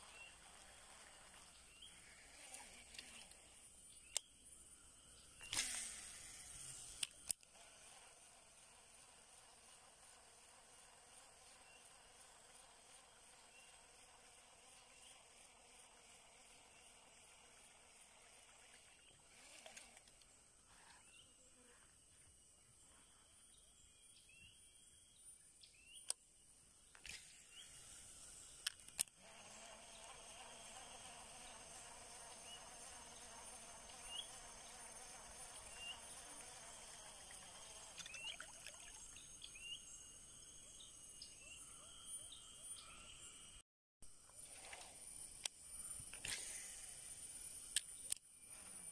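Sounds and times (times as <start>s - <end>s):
insect drone: 0.0s - 48.9s.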